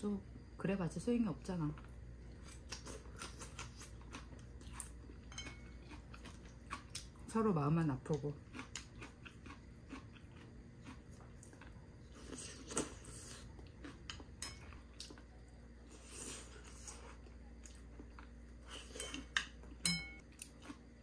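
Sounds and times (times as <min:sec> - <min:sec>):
utensils clinking against dishes: 0:18.8 - 0:20.2
ringing clink: 0:19.8 - 0:20.2.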